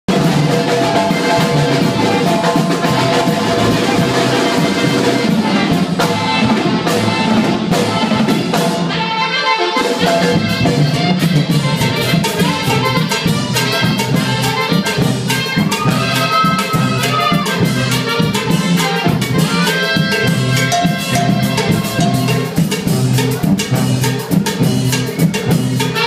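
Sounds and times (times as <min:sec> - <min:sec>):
brass horn: 0:00.1 - 0:26.0
drum kit: 0:00.1 - 0:26.0
saxophones: 0:00.1 - 0:26.0.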